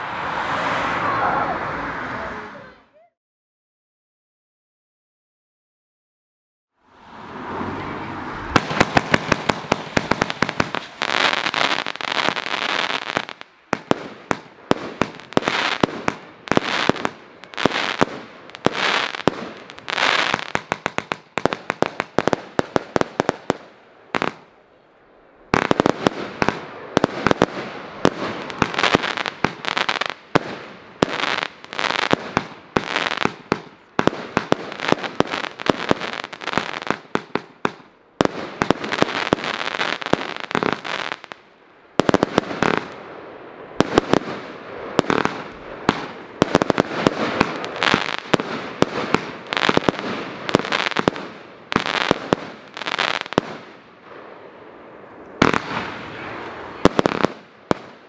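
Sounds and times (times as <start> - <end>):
firework crackling: 8.3 - 24.6, 25.4 - 58.0
firework shots firing: 8.5 - 24.5, 25.5 - 41.4, 42.0 - 43.1, 43.8 - 54.3, 55.4 - 58.0.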